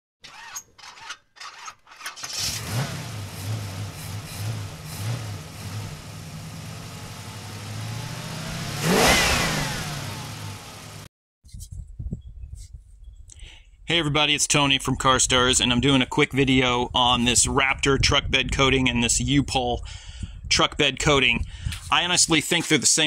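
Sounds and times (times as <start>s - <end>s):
engine starter clicks: 2.0s - 2.9s
car engine revving: 2.3s - 11.1s.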